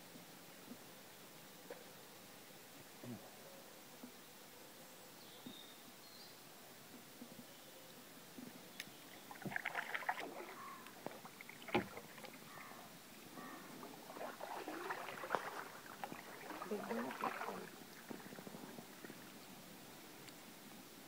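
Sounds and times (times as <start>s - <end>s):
water splashing and lapping: 9.0s - 20.7s.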